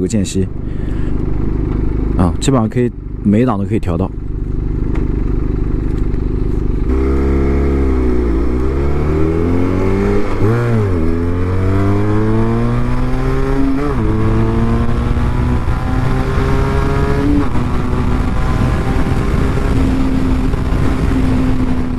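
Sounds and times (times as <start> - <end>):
motorcycle engine idling: 0.4 - 6.9
motorcycle accelerating through gears: 4.3 - 21.9.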